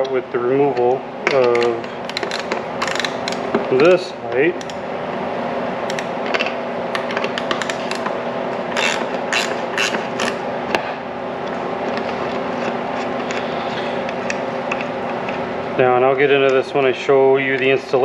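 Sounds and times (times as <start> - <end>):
steady hum: 0.0 - 18.0.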